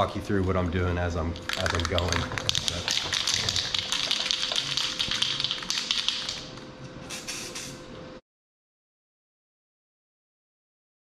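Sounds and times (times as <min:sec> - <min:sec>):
spray cans rattling when shaken: 0:01.4 - 0:06.5.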